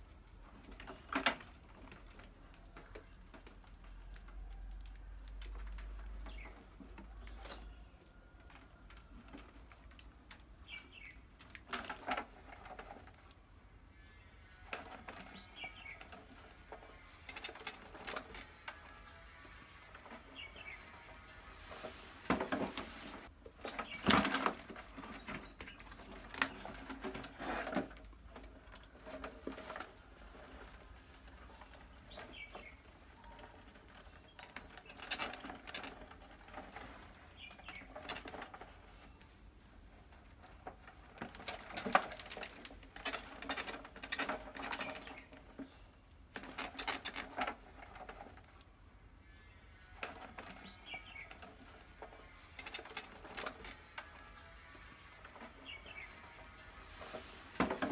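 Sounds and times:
rodents scrabbling against mesh: 14.7 - 18.8, 22.3 - 39.1, 40.1 - 45.7, 46.3 - 48.6, 50.0 - 57.9.

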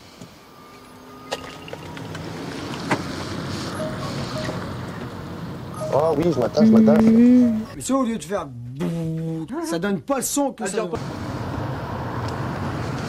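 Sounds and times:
electric car warning hum: 0.0 - 7.8
tyre hiss on wet road: 2.4 - 4.4.

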